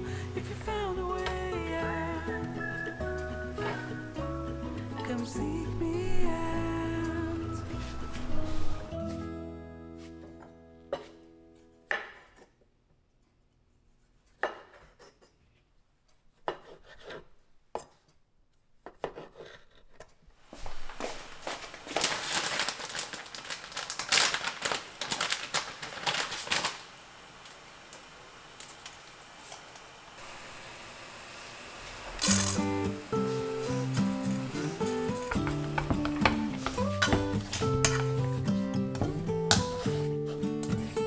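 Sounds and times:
dense crackling and rustling: 21.1s - 27.0s.

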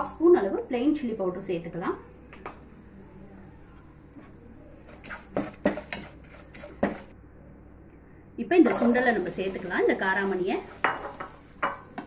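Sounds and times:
spoon clinking and scraping a pan: 10.7s - 12.0s.

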